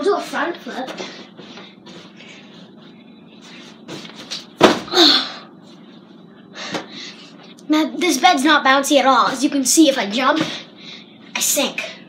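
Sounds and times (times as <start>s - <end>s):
body landing on a mattress: 3.9s - 5.0s.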